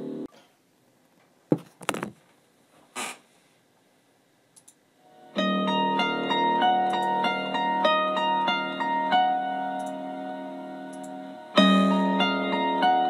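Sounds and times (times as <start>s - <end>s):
plucked-string music: 5.1s - 13.0s.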